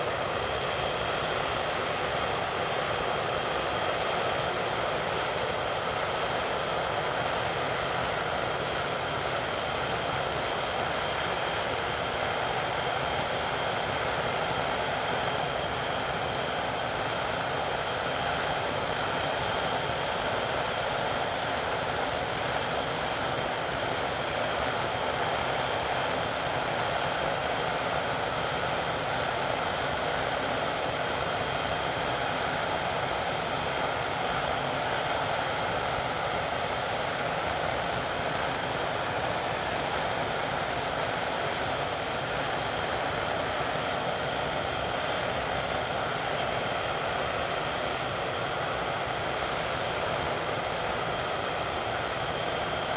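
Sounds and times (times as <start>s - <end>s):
jet engines running with turbine whine: 0.0s - 52.9s.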